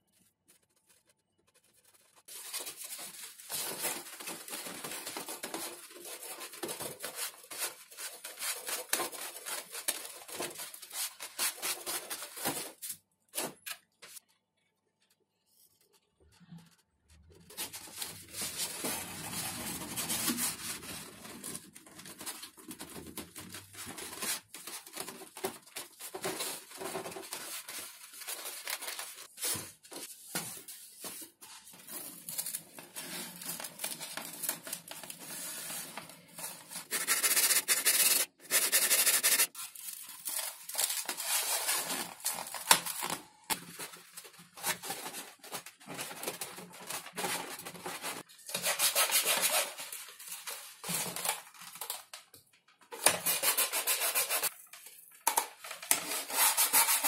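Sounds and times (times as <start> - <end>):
hands rubbing foam sheets: 35.1 - 39.6
loud rasping of foam: 36.8 - 39.5.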